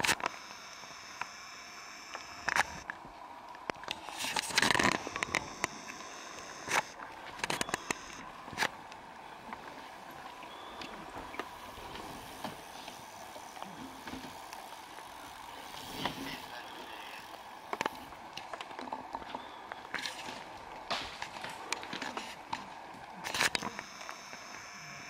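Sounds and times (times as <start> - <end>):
bike tyre and drivetrain noise: 0.0 - 25.0
rattling clicks from bikes: 10.8 - 24.7.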